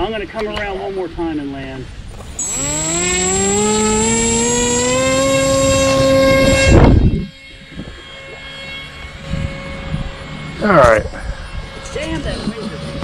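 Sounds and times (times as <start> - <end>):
electric motor and propeller whine: 2.0 - 13.0.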